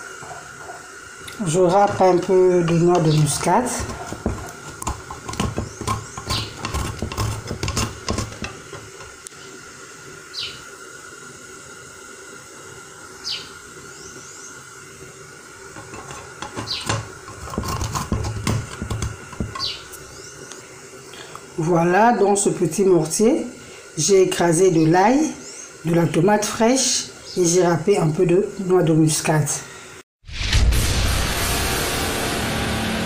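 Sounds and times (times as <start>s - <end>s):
nutmeg scraping on metal grater: 1.4s - 9.2s, 15.8s - 20.0s.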